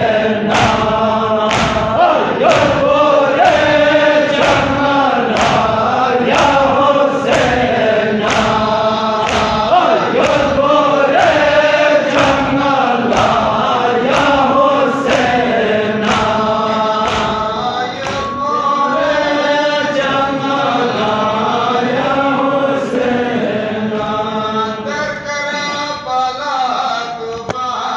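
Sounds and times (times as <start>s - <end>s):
men chanting together: 0.0s - 27.9s
chest-beating strikes: 15.1s - 19.5s.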